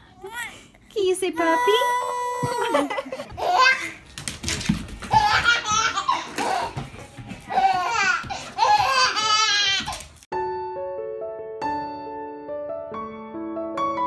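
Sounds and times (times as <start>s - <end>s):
baby laughing: 2.1s - 4.0s, 5.1s - 6.8s, 7.5s - 10.0s.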